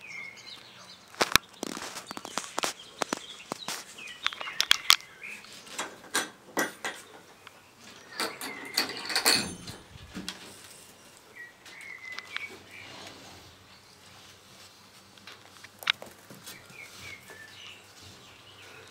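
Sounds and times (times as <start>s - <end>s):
rustling scrape: 1.6s - 4.1s, 12.5s - 18.4s
latch clicks and door knocks: 5.8s - 7.3s, 8.0s - 10.4s.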